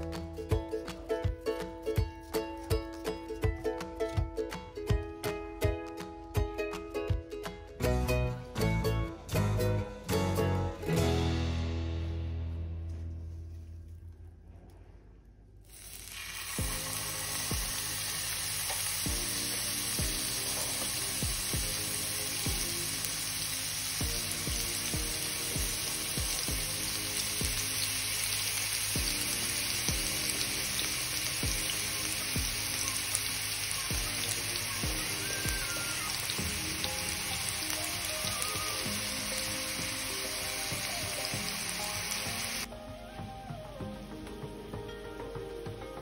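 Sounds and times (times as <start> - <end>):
meat sizzling in a frying pan: 15.7 - 42.7.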